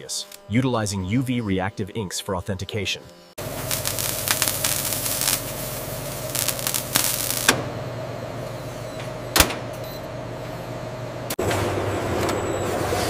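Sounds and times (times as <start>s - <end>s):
machine humming: 0.0s - 13.0s
crackling and hissing bursts: 3.4s - 7.6s.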